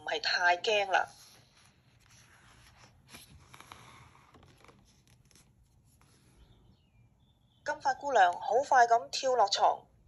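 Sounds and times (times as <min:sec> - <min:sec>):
book page turning: 0:00.8 - 0:06.5.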